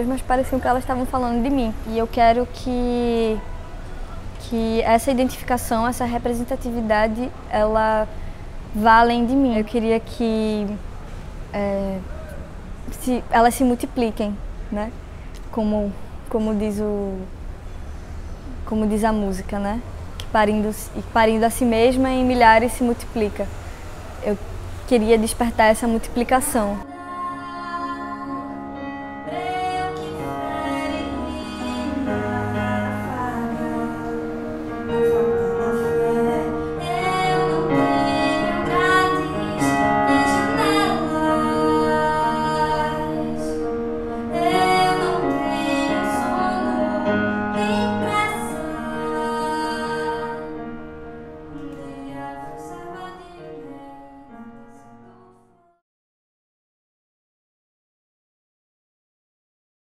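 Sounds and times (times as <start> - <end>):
woman singing long notes: 26.8 - 50.6, 51.6 - 54.3
sustained musical accompaniment: 26.8 - 55.5.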